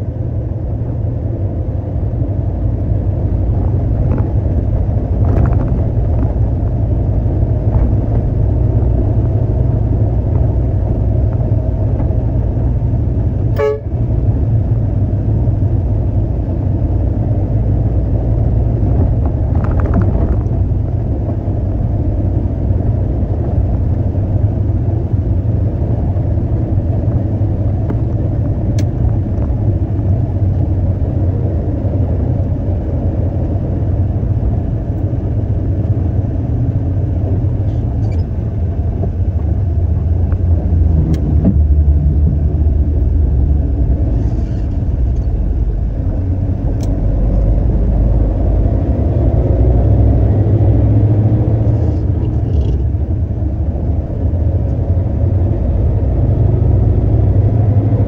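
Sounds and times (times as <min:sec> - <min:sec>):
diesel engine rumbling: 0:00.0 - 0:58.0
horn toot: 0:13.6 - 0:14.0.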